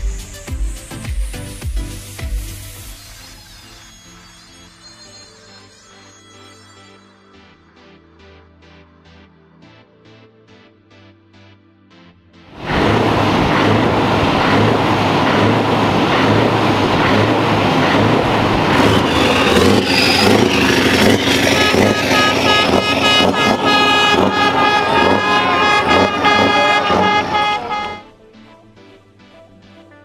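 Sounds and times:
heavy truck engine running: 0:12.5 - 0:28.0
truck air horns chord: 0:12.6 - 0:28.1.

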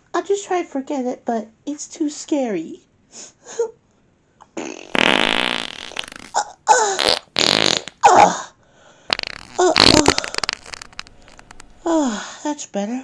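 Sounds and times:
fart noise: 0:04.6 - 0:08.2, 0:09.1 - 0:11.6.

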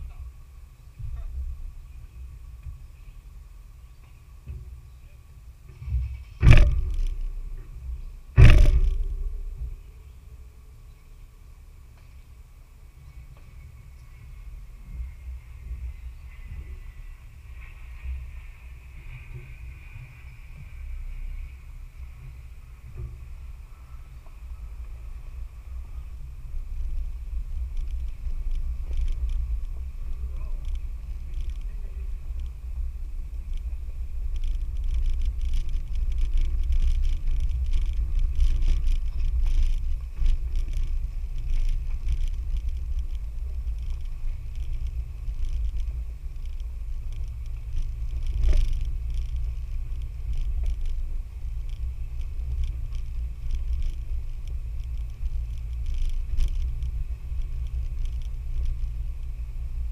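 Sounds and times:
engine rumble: 0:00.0 - 0:59.9
knocks and rattles: 0:05.7 - 0:09.8, 0:26.0 - 0:59.7.

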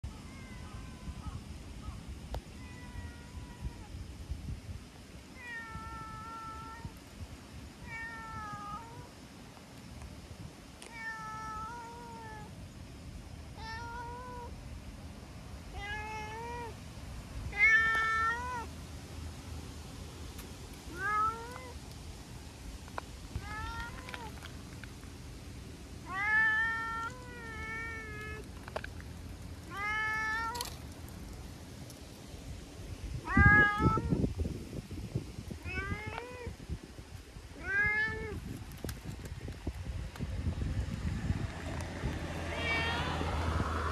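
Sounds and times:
cat meowing: 0:00.2 - 0:01.4, 0:02.6 - 0:03.9, 0:20.9 - 0:21.8, 0:26.0 - 0:28.4, 0:29.7 - 0:30.6, 0:33.2 - 0:34.2, 0:35.6 - 0:36.5, 0:42.5 - 0:43.2.

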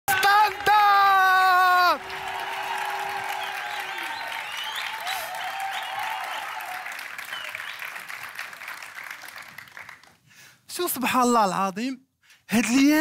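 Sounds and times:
audience applauding and cheering: 0:00.1 - 0:10.3
whoops: 0:00.6 - 0:07.7.

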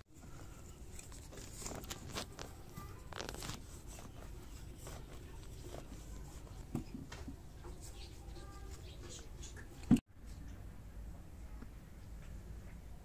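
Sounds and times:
hands crunching dry soil: 0:00.9 - 0:06.7.

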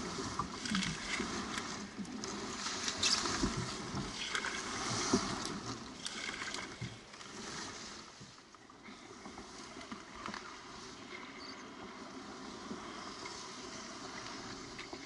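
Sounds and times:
water sloshing: 0:00.0 - 0:08.6
paddle strokes splashing: 0:00.0 - 0:15.0.

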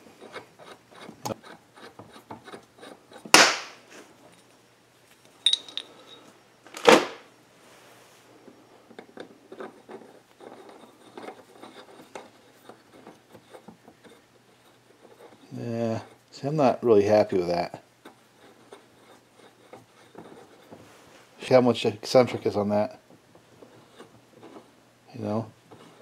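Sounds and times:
metal tools clanking on workbench: 0:05.4 - 0:06.4
short metallic ring: 0:05.4 - 0:06.4.

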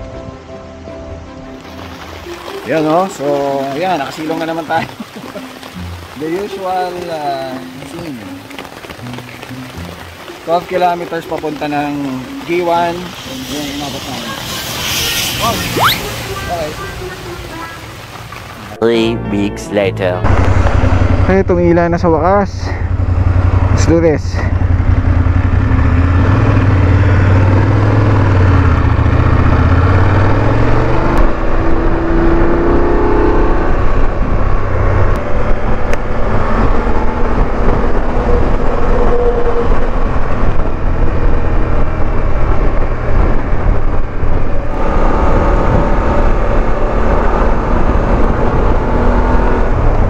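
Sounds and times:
wind and road rush: 0:00.0 - 0:19.1, 0:20.1 - 0:50.0
motorcycle engine accelerating: 0:20.2 - 0:50.0.

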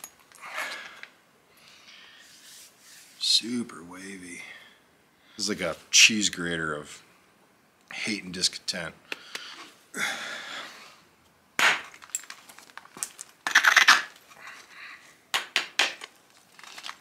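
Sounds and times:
stone flakes clinking: 0:11.9 - 0:14.0.

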